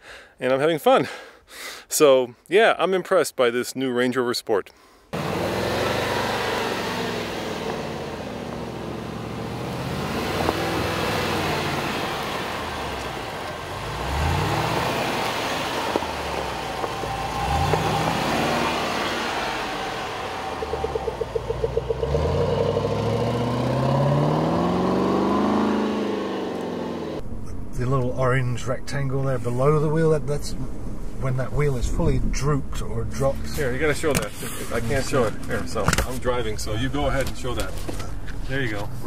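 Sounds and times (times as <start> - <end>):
tyres on dirt: 5.2 - 28.1
car engine revving: 5.2 - 39.0.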